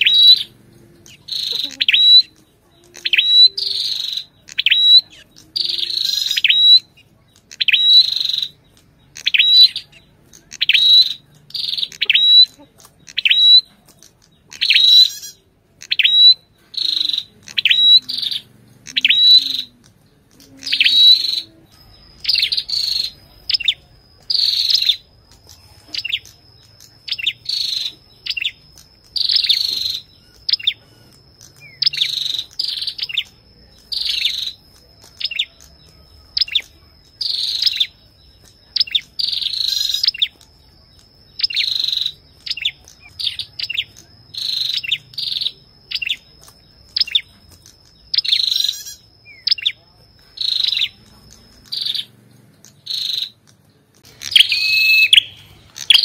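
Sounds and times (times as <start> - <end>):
faint steady high tone: 0.0 - 12.6, 14.9 - 56.0
bird chipping song: 0.0 - 56.0.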